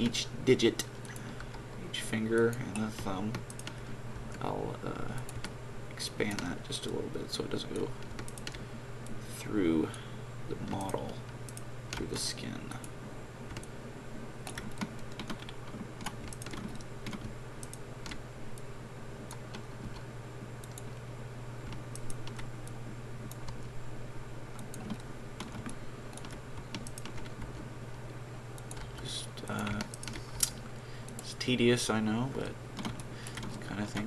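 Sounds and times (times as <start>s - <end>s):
low hum: 0.0s - 34.0s
keyboard keys clicking: 14.4s - 18.2s, 24.6s - 27.6s.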